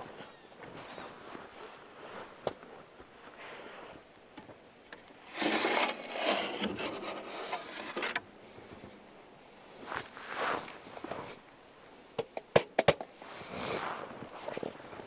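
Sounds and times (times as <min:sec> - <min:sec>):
scraper scraping ash: 0:05.3 - 0:08.2.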